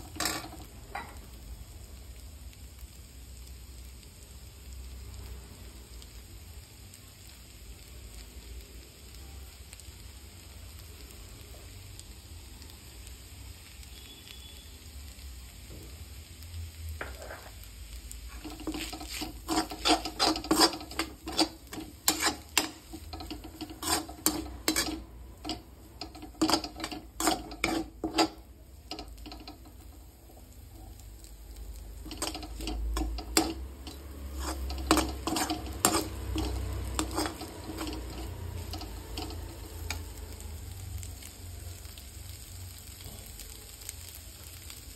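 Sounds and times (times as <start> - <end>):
spatula scraping a steel wok: 0.0 - 1.2, 17.0 - 17.7, 18.3 - 31.0, 32.0 - 40.0
faint sizzle of frying: 0.0 - 44.9.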